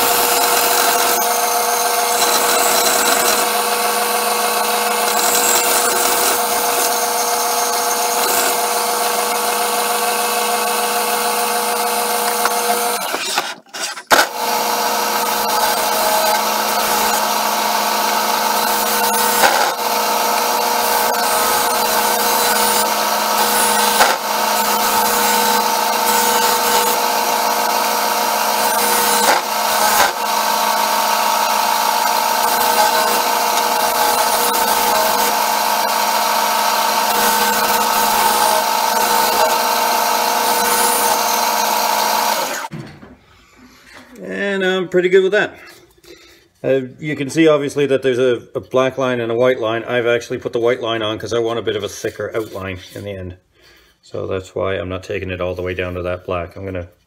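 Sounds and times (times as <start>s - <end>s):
sander humming: 0.0s - 42.7s
sander rubbing on wood: 0.0s - 42.7s, 50.5s - 53.3s.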